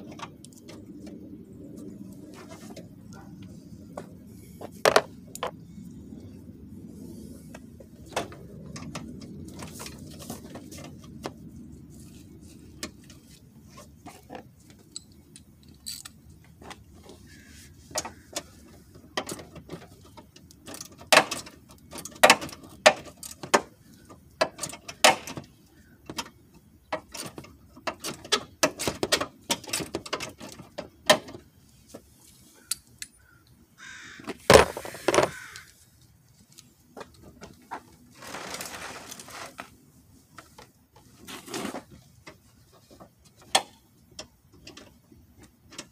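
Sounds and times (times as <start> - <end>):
plastic scrape: 34.5 - 35.4, 38.1 - 39.8.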